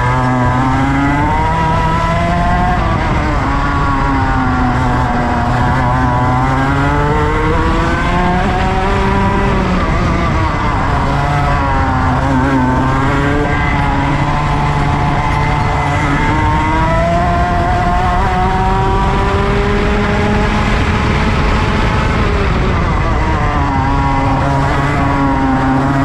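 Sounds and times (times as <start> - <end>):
go-kart engine revving: 0.0 - 26.0.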